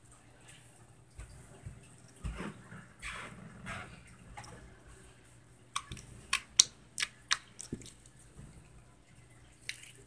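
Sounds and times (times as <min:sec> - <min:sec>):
slime wet pops and clicks: 0:05.8 - 0:07.9.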